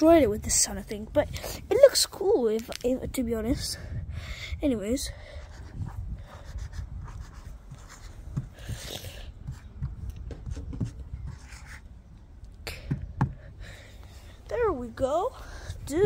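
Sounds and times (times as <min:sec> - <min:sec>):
marker scratchy strokes: 0:05.4 - 0:11.9.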